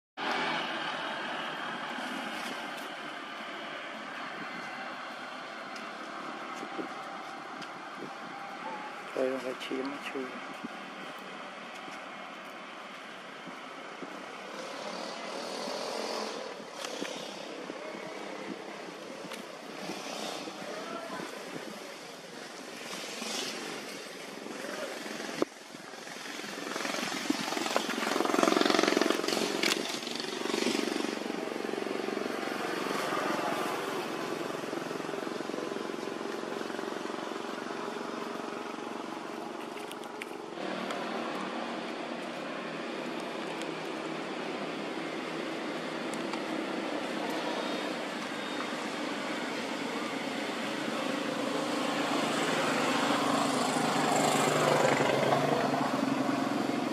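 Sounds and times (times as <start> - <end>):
small motorcycle engine running: 22.8 - 42.4.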